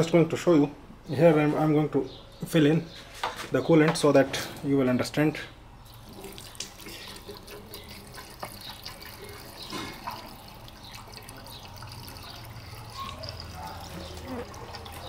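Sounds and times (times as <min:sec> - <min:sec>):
water pouring from bottle: 0:05.9 - 0:15.0.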